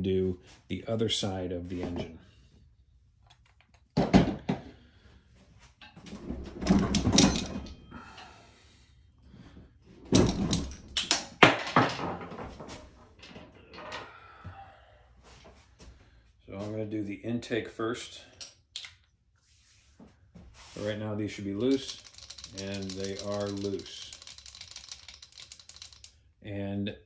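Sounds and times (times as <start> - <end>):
handling bumps and rustling: 5.9 - 7.9, 10.0 - 13.6.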